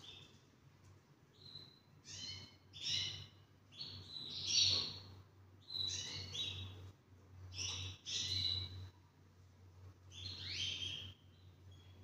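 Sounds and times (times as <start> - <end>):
canary singing: 1.3 - 6.9, 7.5 - 8.9, 10.1 - 12.0.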